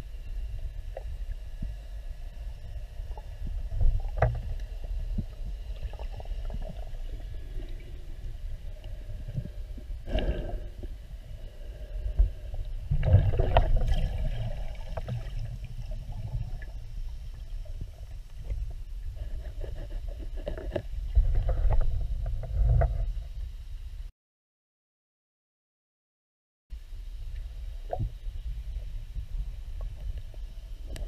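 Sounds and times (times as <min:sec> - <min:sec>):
underwater water rumble: 0:00.0 - 0:24.0, 0:26.9 - 0:31.0
water surges: 0:12.8 - 0:16.9.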